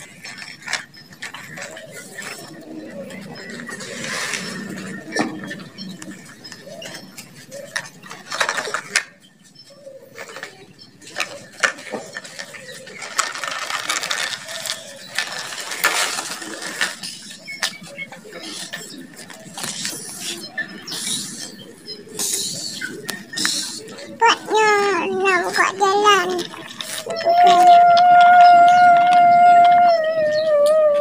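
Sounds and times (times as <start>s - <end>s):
plastic toy truck clicking and rattling: 0.0s - 2.6s, 3.6s - 9.2s, 10.2s - 21.4s
plastic wheels scraping on gravel: 3.4s - 5.9s, 11.2s - 21.3s, 23.5s - 28.0s.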